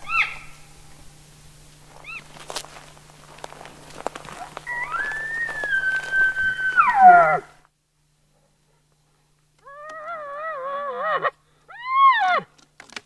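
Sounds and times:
elk bugling: 0.0s - 0.8s, 1.9s - 7.7s, 9.6s - 12.5s.

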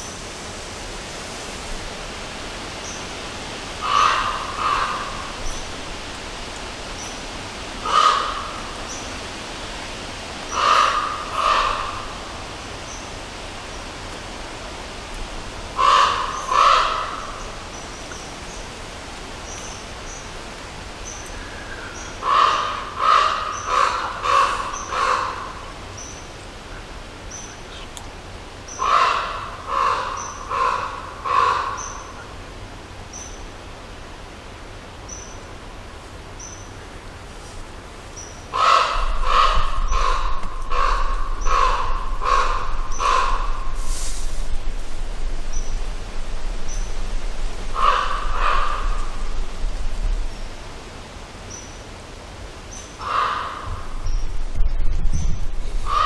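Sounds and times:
steady outdoor hiss: 0.0s - 56.0s
crow cawing: 3.8s - 5.4s, 7.8s - 8.8s, 10.5s - 12.2s, 15.8s - 17.4s, 21.4s - 25.7s, 28.8s - 32.1s, 38.5s - 43.8s, 47.7s - 49.4s, 53.0s - 54.0s.

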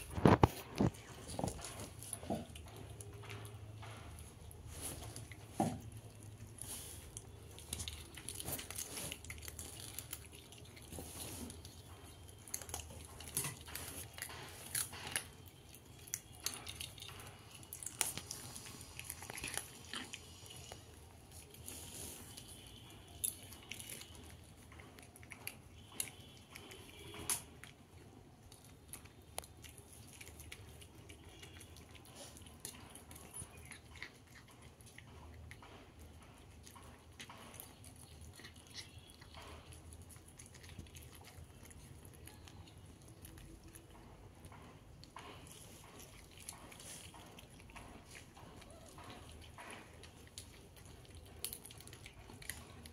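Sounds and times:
cat chewing: 0.0s - 52.9s.

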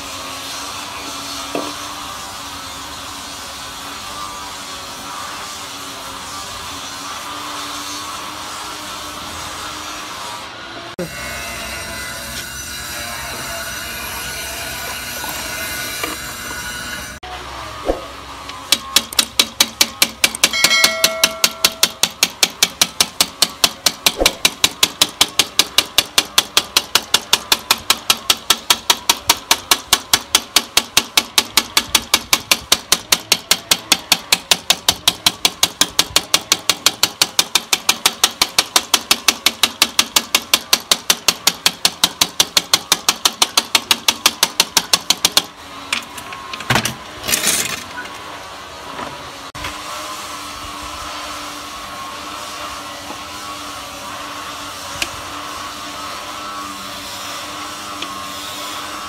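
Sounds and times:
glass cutter tapping on glass: 18.7s - 45.5s.

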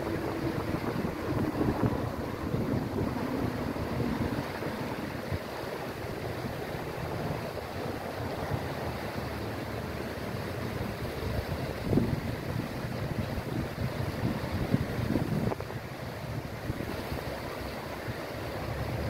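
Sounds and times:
wind buffeting microphone: 0.0s - 9.1s, 11.2s - 17.1s
river rushing over rocks: 0.0s - 19.0s.

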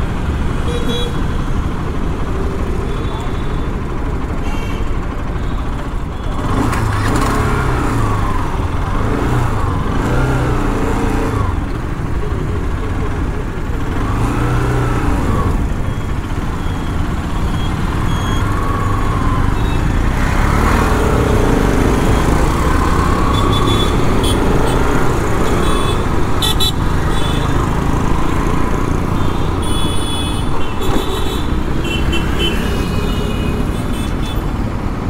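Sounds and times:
motorcycle engine running: 0.0s - 34.1s
traffic rumble: 0.0s - 35.0s
vehicle horns honking: 0.6s - 1.4s, 4.4s - 5.0s, 23.3s - 27.6s, 29.1s - 34.5s.

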